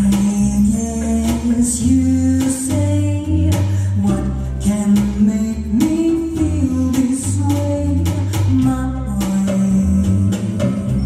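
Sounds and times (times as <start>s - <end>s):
drums keeping a beat: 0.0s - 11.0s
electric bass: 0.0s - 11.0s.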